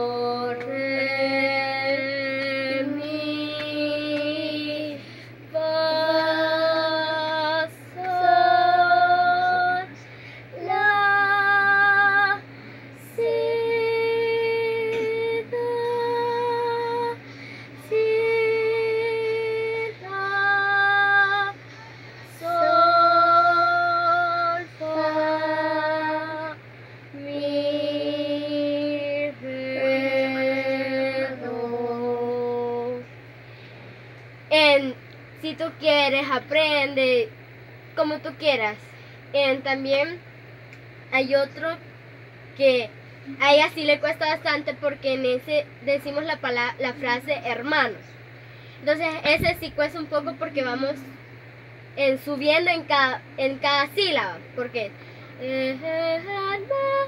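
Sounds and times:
girl singing a scale: 0.0s - 33.0s, 55.4s - 57.0s
breaths: 5.0s - 5.4s, 10.0s - 10.6s, 12.5s - 13.0s, 17.2s - 17.8s, 21.6s - 22.4s, 33.3s - 34.1s, 38.8s - 39.3s, 48.4s - 48.9s, 55.0s - 55.4s.

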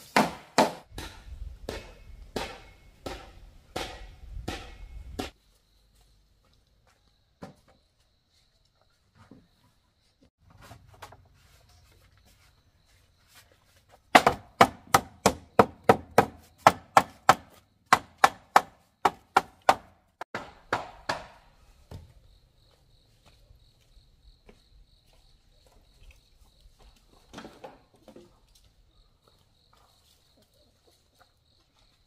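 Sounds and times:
blade chopping wood: 0.0s - 5.4s, 14.2s - 21.4s.

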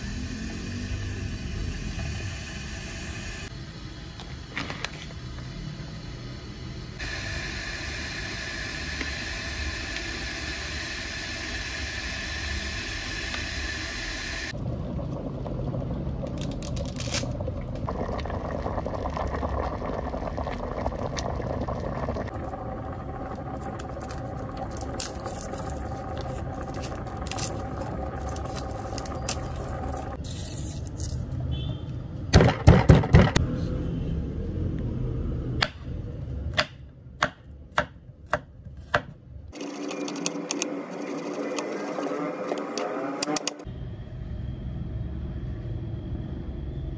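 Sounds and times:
water heating with hiss: 0.0s - 14.6s
garlic being peeled: 23.8s - 31.4s.

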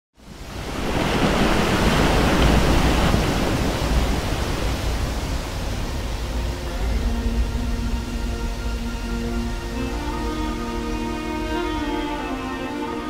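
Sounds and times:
rushing water: 0.2s - 13.0s
deep rumble: 3.8s - 12.0s.

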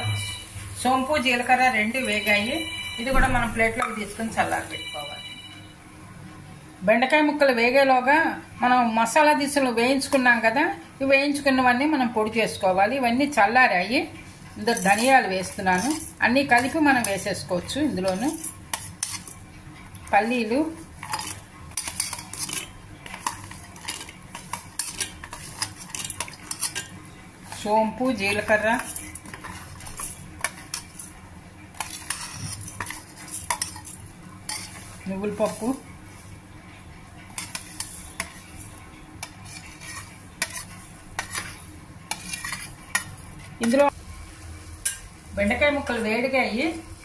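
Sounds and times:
spoon scraping a metal plate: 18.0s - 19.4s, 21.0s - 31.1s, 31.8s - 35.8s, 37.3s - 43.9s.

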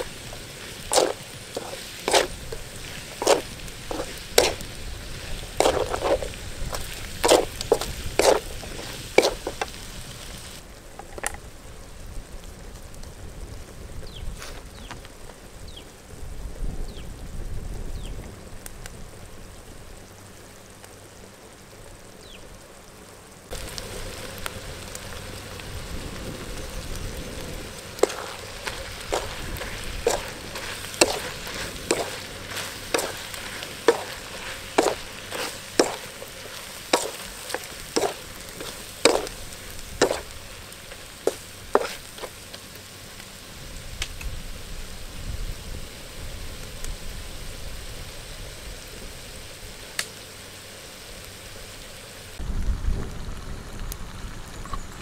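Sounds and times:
spatula scraping wok: 0.0s - 10.6s, 27.9s - 42.6s
food sizzling in a wok: 0.0s - 54.5s.

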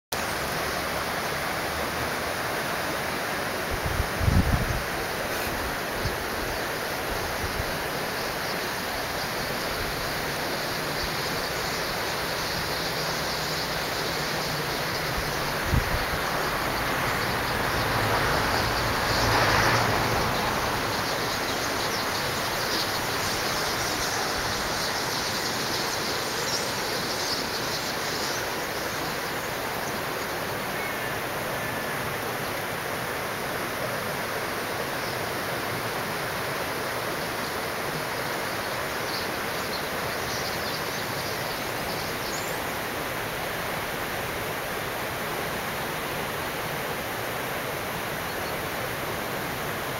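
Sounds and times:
steady rushing hiss: 0.2s - 49.9s
starlings chirping: 4.2s - 32.5s, 38.2s - 42.9s.

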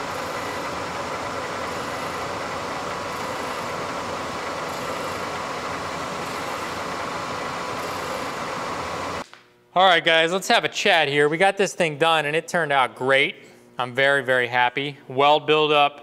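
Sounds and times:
milling machine cutting steel: 0.0s - 9.2s.

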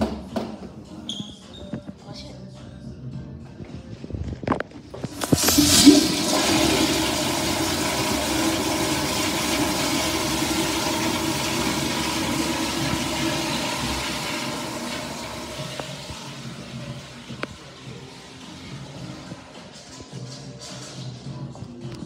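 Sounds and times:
toilet flushing water rush: 5.0s - 19.5s
toilet flush clicks: 5.1s - 17.6s.

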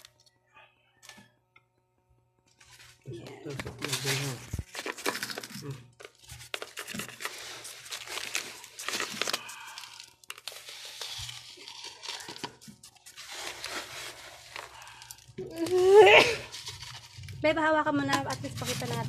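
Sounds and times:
plastic scoop scraping gritty soil: 18.1s - 19.0s.

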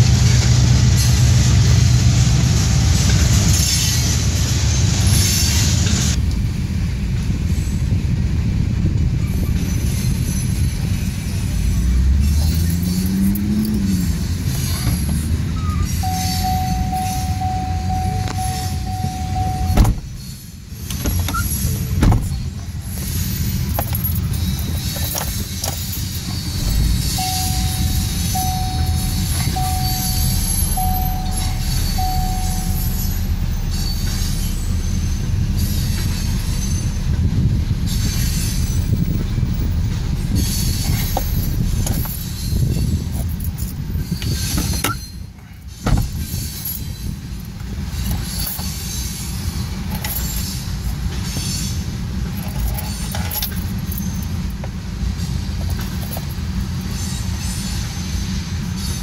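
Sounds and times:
freight train rumbling past: 0.0s - 59.0s
high squealing tone: 15.4s - 20.5s, 24.4s - 43.0s.

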